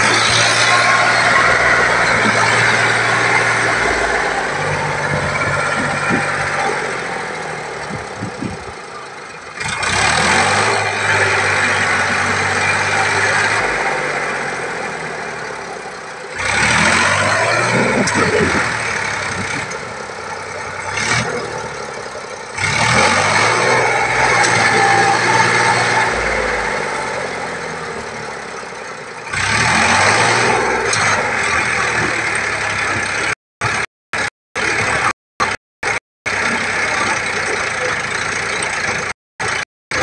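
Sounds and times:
tyres churning loose sand: 0.0s - 9.0s
tractor diesel engine under load: 0.0s - 40.0s.

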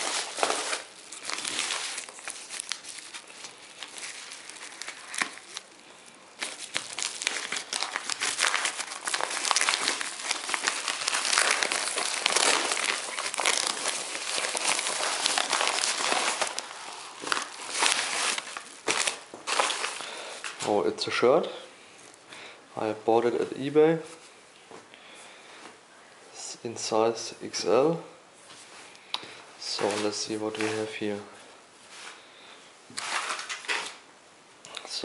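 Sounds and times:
paper envelope crinkling: 0.0s - 20.6s, 29.6s - 31.1s, 33.0s - 34.0s.

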